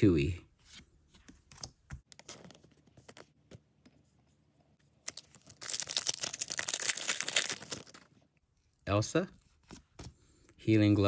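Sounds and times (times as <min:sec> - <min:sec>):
foil wrapper crinkling and tearing: 0:05.0 - 0:08.2.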